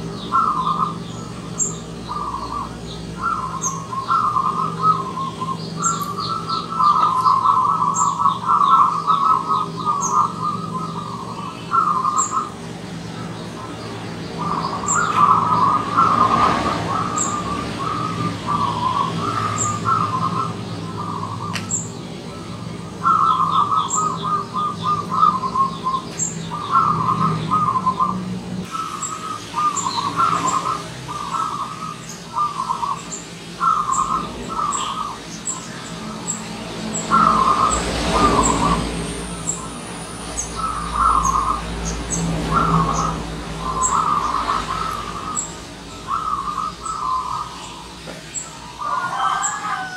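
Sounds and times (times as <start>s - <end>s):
dove cooing: 0.0s - 36.4s, 37.0s - 49.9s
high bird chirps: 0.0s - 49.9s.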